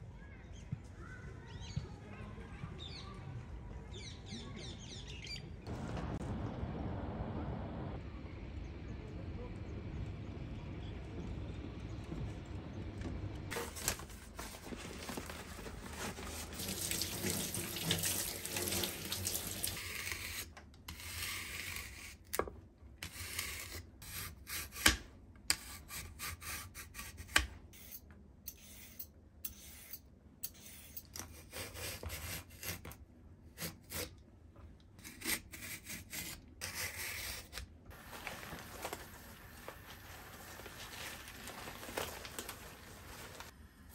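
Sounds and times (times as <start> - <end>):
newspaper crinkling: 13.5 - 19.8, 37.9 - 43.6
water running in a sink: 15.8 - 19.9, 38.0 - 43.5.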